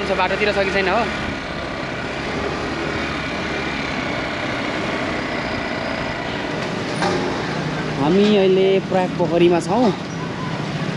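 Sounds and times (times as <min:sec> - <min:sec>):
motorcycle engine running: 0:00.0 - 0:09.9.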